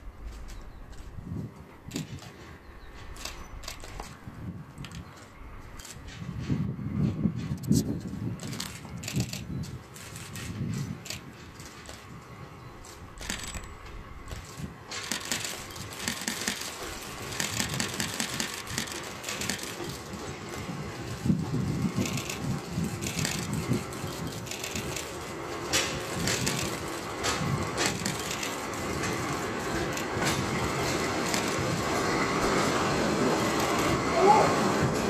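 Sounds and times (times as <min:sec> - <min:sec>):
diesel locomotive engine rumble: 0:00.0 - 0:35.0
irregular clicks and crackle: 0:01.9 - 0:04.2, 0:08.4 - 0:21.3, 0:21.9 - 0:31.6.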